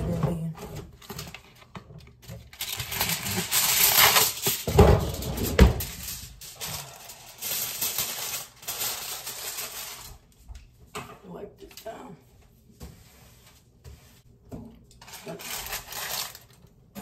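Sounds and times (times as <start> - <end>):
aluminium foil crinkling: 1.0 - 10.4, 15.0 - 16.7.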